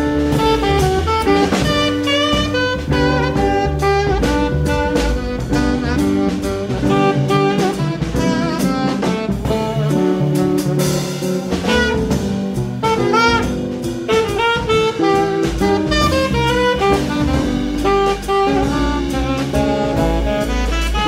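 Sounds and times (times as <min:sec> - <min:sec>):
drum kit beat: 0:00.0 - 0:21.0
jazz melody over chords: 0:00.0 - 0:21.0.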